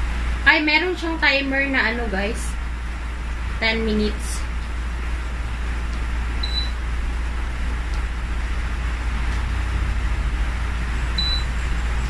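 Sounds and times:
steady low rumble: 0:00.0 - 0:12.0
short high beeps: 0:06.4 - 0:06.8, 0:11.2 - 0:11.5.

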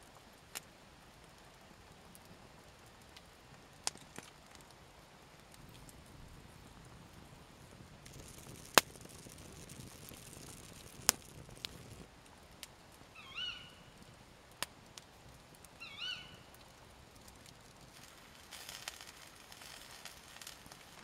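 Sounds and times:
campfire crackling: 0:00.0 - 0:21.0
animal call: 0:13.2 - 0:13.9, 0:15.8 - 0:16.5.

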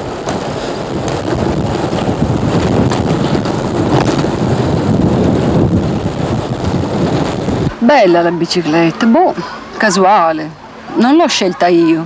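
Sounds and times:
wind rushing over microphone: 0:00.0 - 0:12.0.

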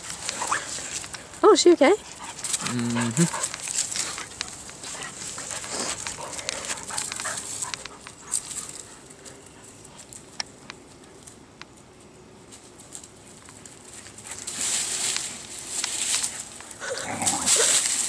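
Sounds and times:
faint dog noises: 0:00.3 - 0:10.2, 0:16.3 - 0:17.9.

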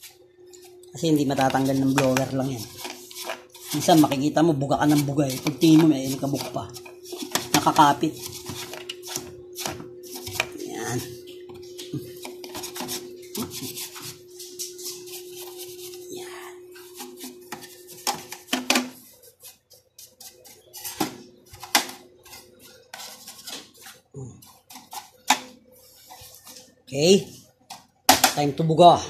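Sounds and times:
stiff brush scrubbing: 0:00.0 - 0:21.0.

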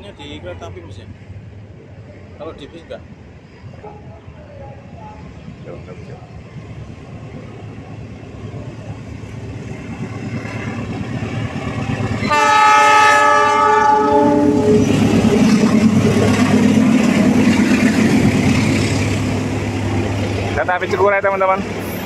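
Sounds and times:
diesel train rumbling: 0:00.0 - 0:22.0
train wheels on rail: 0:00.0 - 0:22.0
locomotive horn blast: 0:12.2 - 0:14.9.

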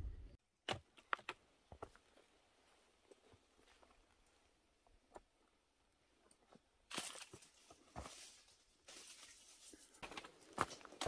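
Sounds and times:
footsteps crunching on dry leaves: 0:06.9 - 0:11.0
leaves rustling: 0:06.9 - 0:11.0.

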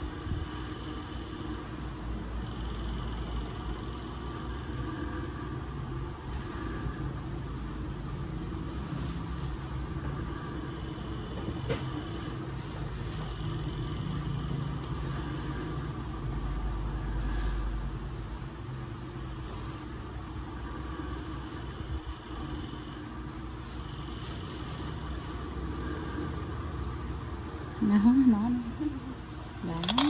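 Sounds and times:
metal tool scraping toenail: 0:29.7 - 0:30.0.

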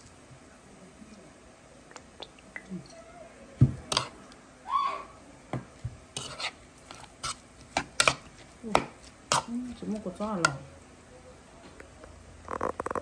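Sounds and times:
metal spoon scraping ceramic bowl: 0:03.9 - 0:04.1, 0:06.2 - 0:08.3.

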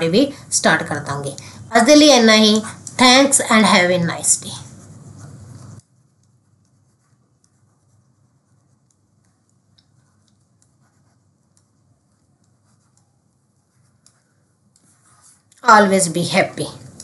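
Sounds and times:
pen stylus scratching while writing: 0:03.6 - 0:15.6.

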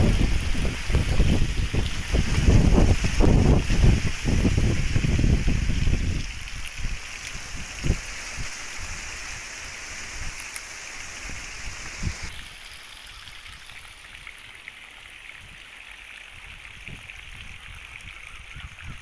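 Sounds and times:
wind gusts thumping microphone: 0:00.0 - 0:10.4, 0:11.0 - 0:12.4
strong wind rustling foliage: 0:00.0 - 0:13.8, 0:16.3 - 0:19.0.

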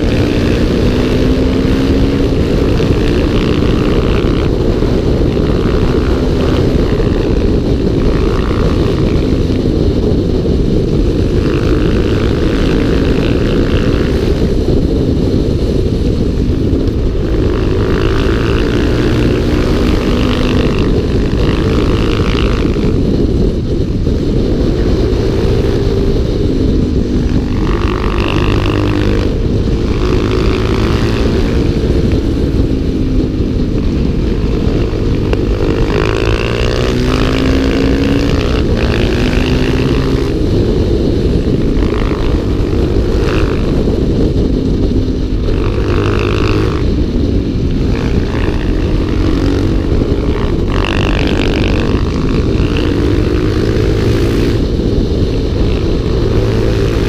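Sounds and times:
motorcycle engines revving: 0:00.0 - 0:57.0
wind and road noise: 0:00.0 - 0:57.0.

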